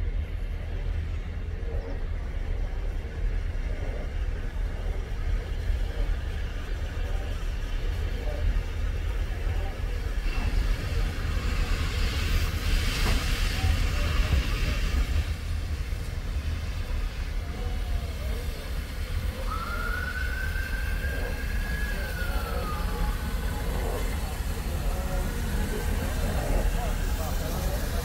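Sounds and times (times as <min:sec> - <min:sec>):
steady low rumble: 0:00.0 - 0:28.0
steam hiss: 0:04.3 - 0:28.0
steam locomotive whistle: 0:19.2 - 0:25.1.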